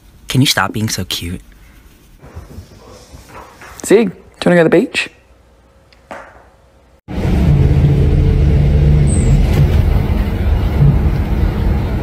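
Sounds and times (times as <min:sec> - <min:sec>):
bus engine hum: 0:07.1 - 0:12.0
road rumble: 0:07.1 - 0:12.0.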